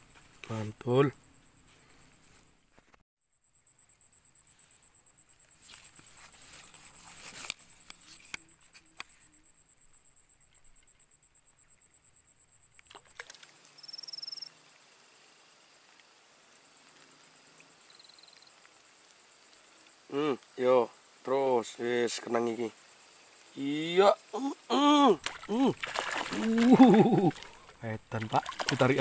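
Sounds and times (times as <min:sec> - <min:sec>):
insects trilling: 0:00.0 - 0:02.6, 0:03.2 - 0:29.0
high insect buzz: 0:03.2 - 0:29.0
short rustle: 0:04.6 - 0:09.3.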